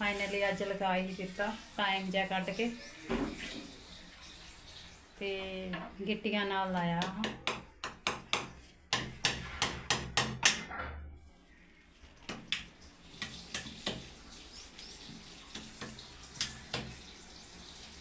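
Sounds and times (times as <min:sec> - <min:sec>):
hammer striking nails: 0:07.2 - 0:10.6.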